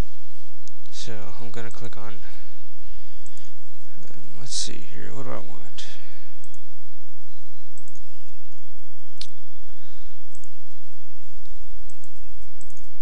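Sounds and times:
steady low hum: 0.0s - 13.0s
computer mouse clicking: 7.8s - 8.1s, 10.3s - 10.6s, 11.4s - 13.0s.

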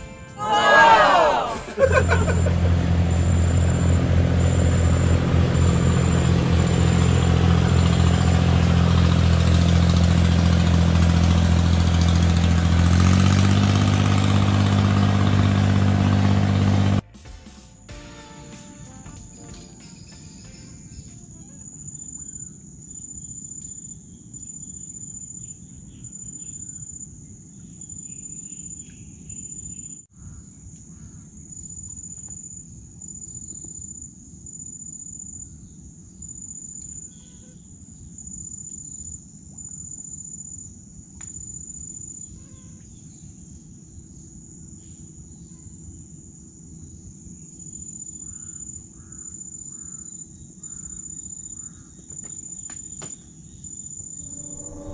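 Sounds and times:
insects trilling: 1.8s - 8.6s, 19.4s - 54.9s
low steady rumble: 54.1s - 54.9s.

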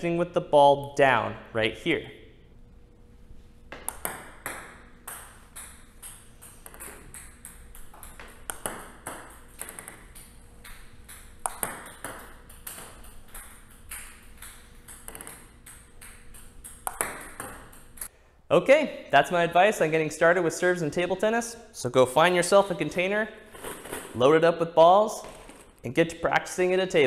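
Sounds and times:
ball bouncing on table: 3.7s - 18.1s
ball striking racket: 3.7s - 18.1s.

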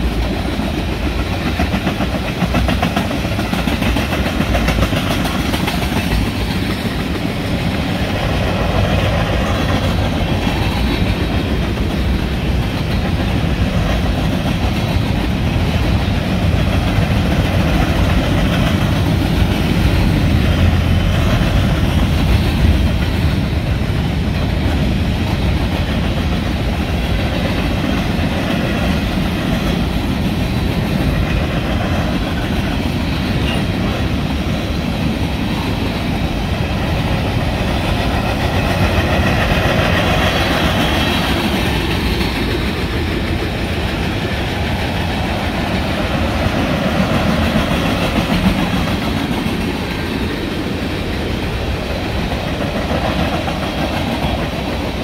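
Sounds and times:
freight train wheels rumbling: 0.0s - 55.0s.

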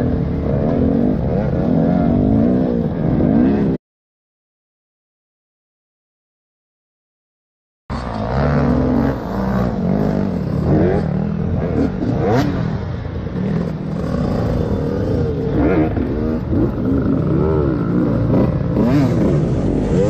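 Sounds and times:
dirt bike engines revving: 0.0s - 3.8s, 7.9s - 20.0s.

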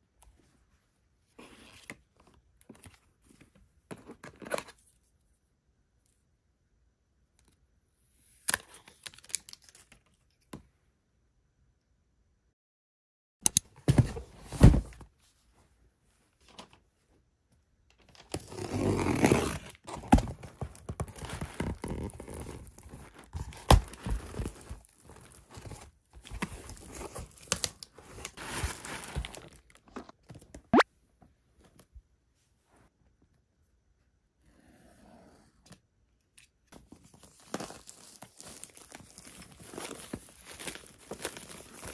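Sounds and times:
cardboard packaging rustling: 18.1s - 30.4s, 36.8s - 41.9s
cardboard tearing: 18.3s - 29.8s.

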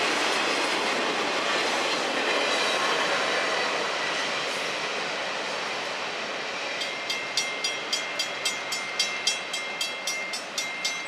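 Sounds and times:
freight train rolling: 0.0s - 11.0s
crossing bell ringing: 6.7s - 11.0s.

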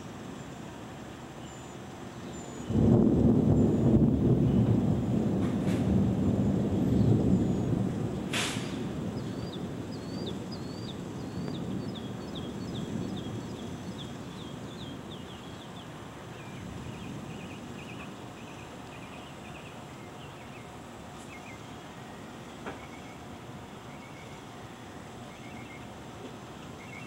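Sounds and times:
thunder rumbling: 2.7s - 18.8s
bird chirping: 9.2s - 23.2s, 25.2s - 25.9s, 26.8s - 27.0s.

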